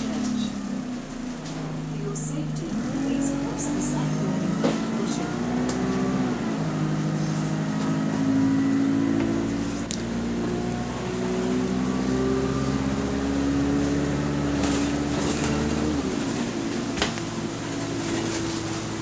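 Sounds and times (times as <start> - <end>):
bus engine droning: 0.0 - 19.0.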